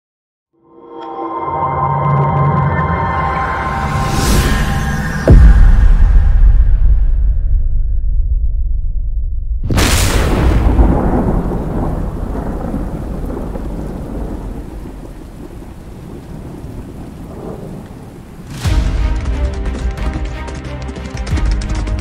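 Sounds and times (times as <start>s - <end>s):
thunderclap and rolling rumble: 9.6s - 19.4s
rain hiss: 9.8s - 18.6s.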